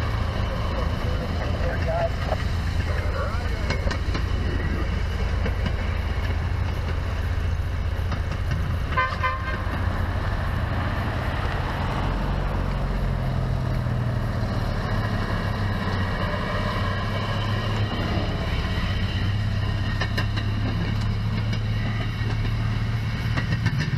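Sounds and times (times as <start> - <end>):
car passing: 0.0 - 23.9
low rumble: 0.0 - 23.9
buzzy horn toot: 8.9 - 9.7.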